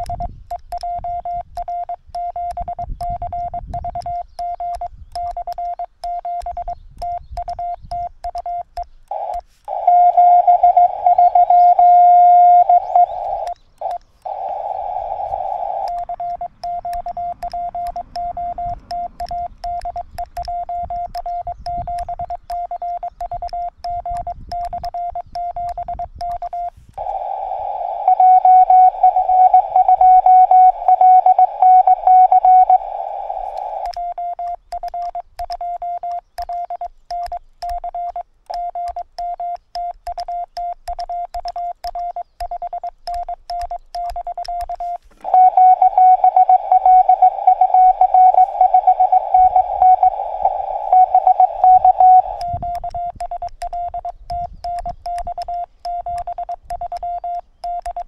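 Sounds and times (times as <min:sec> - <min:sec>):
morse code tones: 0:00.0 - 0:58.0
radio receiver hiss: 0:09.1 - 0:20.4, 0:26.4 - 0:34.0, 0:44.7 - 0:53.4.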